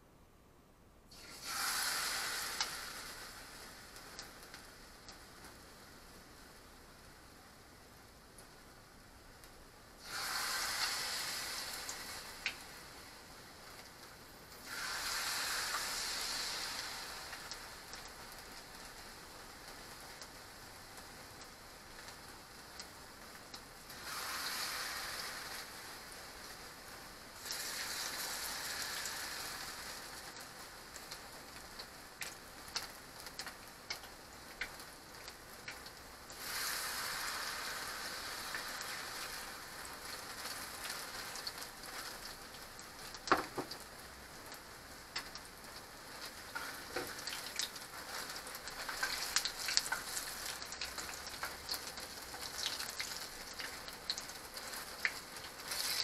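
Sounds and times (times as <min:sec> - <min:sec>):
battered food sizzling in oil: 0:01.1 - 0:56.0.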